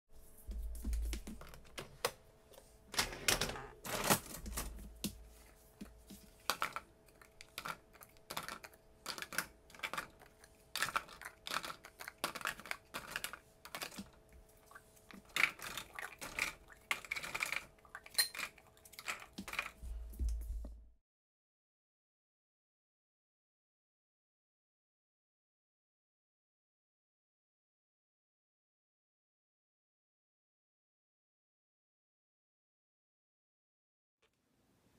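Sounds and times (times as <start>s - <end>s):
plastic containers clattering in rack: 3.0s - 5.1s.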